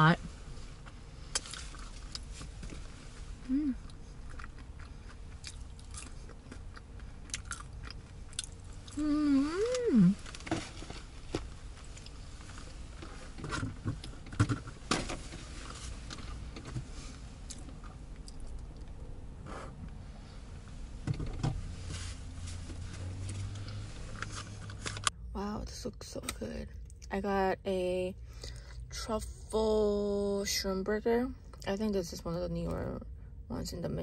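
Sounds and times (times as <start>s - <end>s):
person humming: 3.5s - 3.8s, 9.0s - 10.2s
person chewing and crunching: 3.5s - 10.4s, 17.5s - 19.0s.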